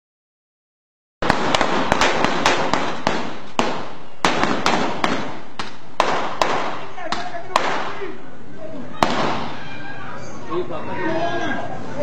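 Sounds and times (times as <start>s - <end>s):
sharp cracks: 1.2s - 8.0s, 9.0s - 9.6s.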